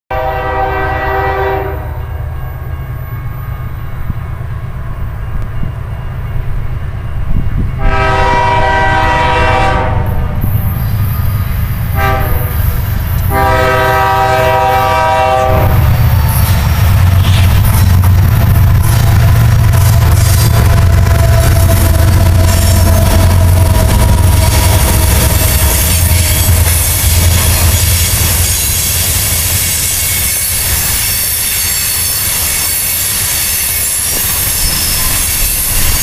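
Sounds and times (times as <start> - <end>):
locomotive air horn blasts: 0.1 - 2.0, 7.8 - 10.5, 11.8 - 16.0, 20.5 - 34.8
low rumble of locomotives: 0.1 - 36.0.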